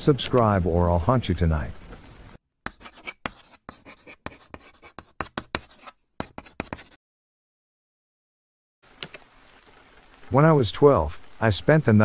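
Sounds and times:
chalk scratching on chalkboard: 2.7s - 7.0s.

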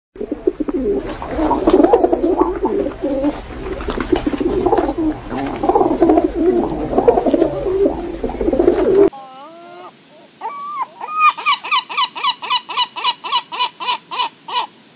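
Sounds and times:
pigeons cooing: 0.2s - 9.1s.

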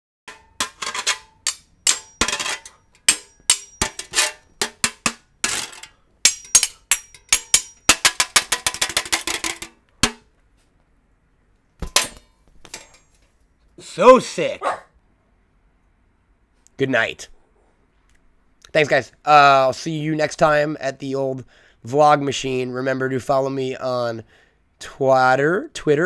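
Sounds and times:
spoons striking metal grater: 0.3s - 10.2s.

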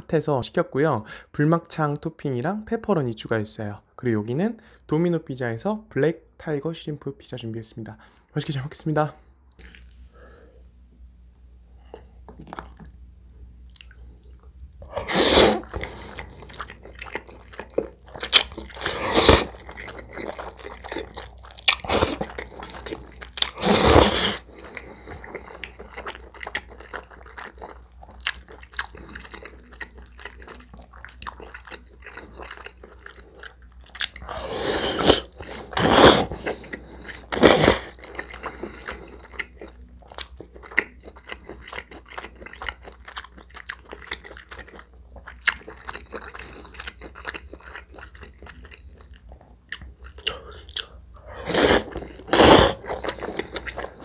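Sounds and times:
wet chewing: 14.8s - 54.0s
loud slurping of noodles: 14.9s - 16.3s, 18.8s - 19.6s, 23.5s - 24.5s, 34.2s - 37.9s, 51.3s - 53.6s.

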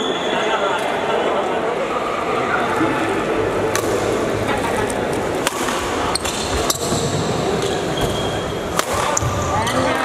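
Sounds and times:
steady background noise: 0.0s - 10.0s
rackets hitting shuttlecock: 3.7s - 10.0s.

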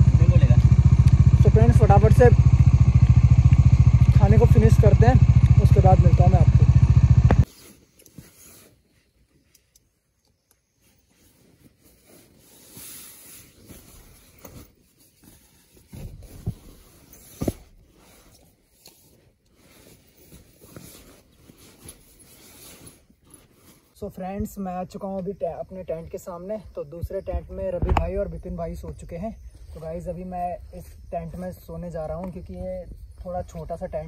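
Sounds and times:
sleeping bag and gear rustling: 7.4s - 24.1s.

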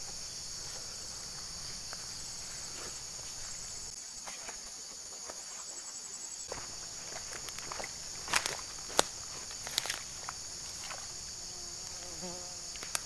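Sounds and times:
faint footsteps on dirt: 0.0s - 5.8s, 6.5s - 13.0s
high-pitched insect chorus: 0.0s - 13.0s.

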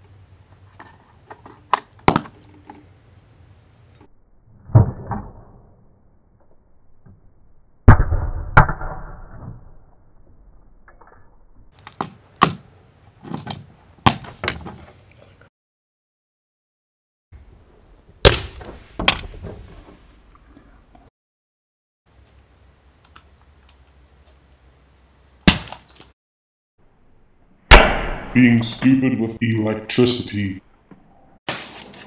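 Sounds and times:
electrical arcing bangs: 27.7s - 28.6s.

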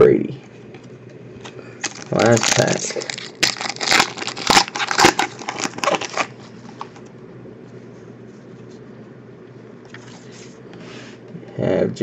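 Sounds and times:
faint steady hum: 0.0s - 12.0s
foil wrapper crinkling and tearing: 1.4s - 7.0s.

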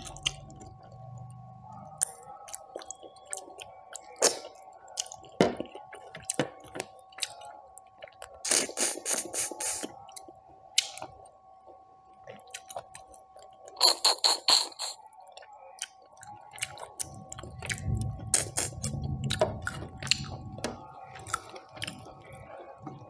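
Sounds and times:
faint steady hum: 0.0s - 23.0s
wet chewing: 12.2s - 22.4s.

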